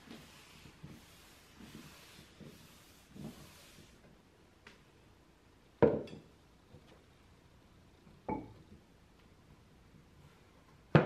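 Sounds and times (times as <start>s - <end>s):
cloth wiping cabinet: 0.0s - 4.2s.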